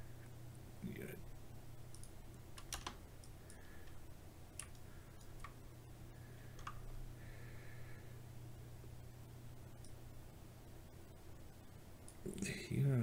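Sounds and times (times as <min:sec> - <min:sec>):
low steady hum: 0:00.0 - 0:13.0
computer mouse clicks: 0:01.9 - 0:05.6, 0:06.5 - 0:06.9, 0:09.8 - 0:10.0.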